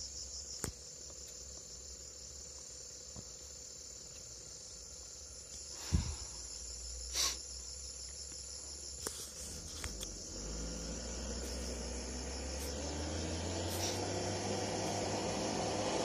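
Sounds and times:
insect chorus drone: 0.0 - 16.0
brief hiss: 7.1 - 7.5.

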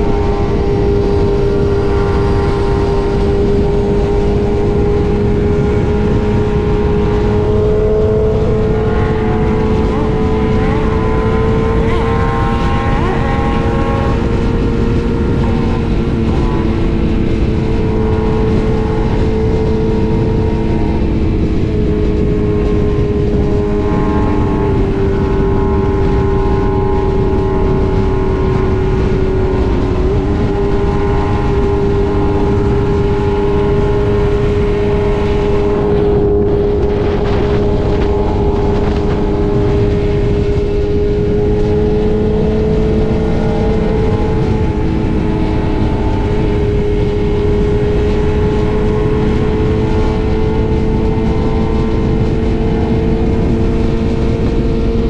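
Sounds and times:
motorcycle engine cruising: 0.0 - 55.0
wind rush: 0.0 - 55.0.

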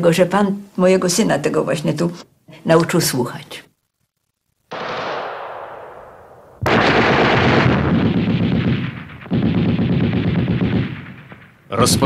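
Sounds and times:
heavy machine-gun fire: 4.7 - 5.9, 6.6 - 11.6
explosion blast: 4.7 - 12.0.

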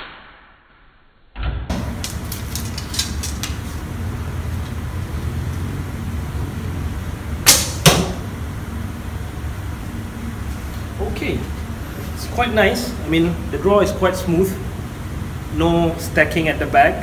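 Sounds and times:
arrow striking target: 0.0 - 2.0, 7.4 - 8.2
steady low hum: 1.7 - 17.0.

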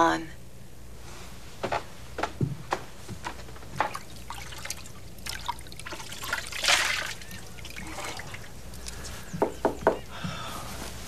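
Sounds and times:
steady low hum: 0.0 - 11.0
liquid pouring or splashing: 3.8 - 9.0.

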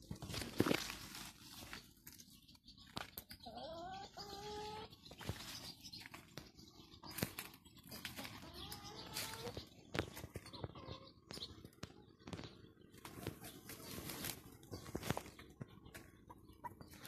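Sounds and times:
chicken calling: 3.4 - 5.1, 7.1 - 9.7.

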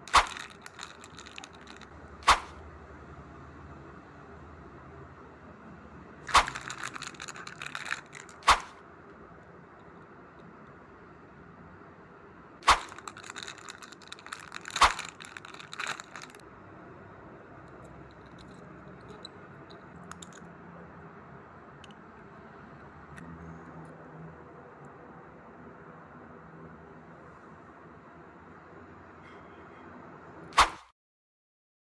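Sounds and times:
plastic bag crinkling: 0.0 - 1.9, 6.3 - 8.8, 12.6 - 16.4.

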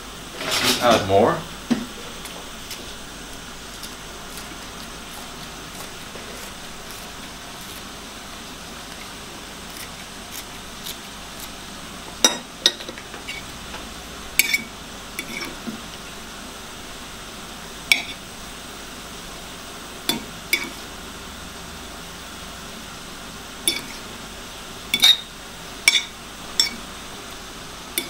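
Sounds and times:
metal spoon clinking ceramic bowl: 23.7 - 24.0, 25.0 - 25.3, 25.9 - 26.8.

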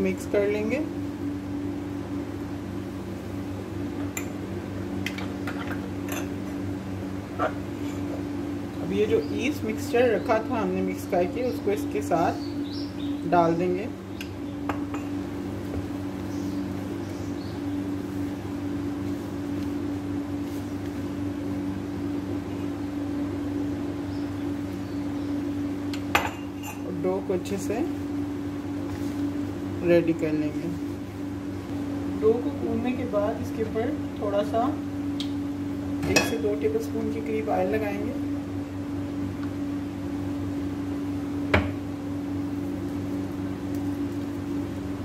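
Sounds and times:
steady low hum: 0.0 - 45.0.

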